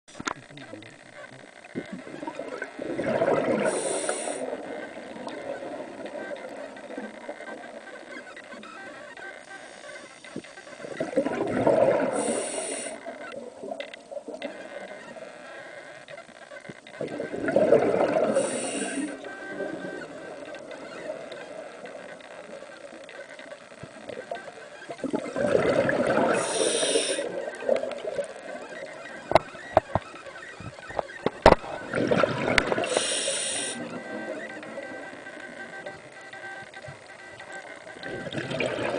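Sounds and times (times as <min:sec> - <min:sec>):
rush of bubbles: 0:02.1 - 0:06.2, 0:10.9 - 0:14.3, 0:17.0 - 0:18.8, 0:25.0 - 0:28.3, 0:31.7 - 0:33.1, 0:38.1 - 0:38.9
diver breathing through regulator: 0:03.6 - 0:04.6, 0:12.0 - 0:13.1, 0:18.2 - 0:19.2, 0:26.2 - 0:27.4, 0:32.7 - 0:33.9.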